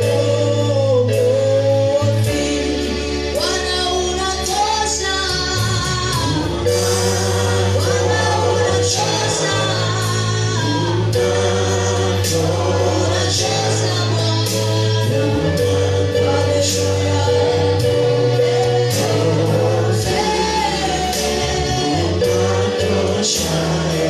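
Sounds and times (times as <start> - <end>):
group singing gospel: 0.0 - 24.0
sustained bass notes: 0.0 - 24.0
percussion hits: 5.6 - 24.0.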